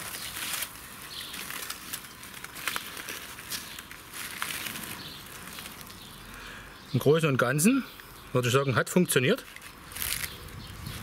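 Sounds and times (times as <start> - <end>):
aluminium foil crinkling: 0.0 - 6.4, 9.4 - 11.0
crust crackling: 0.0 - 6.6, 9.3 - 11.0.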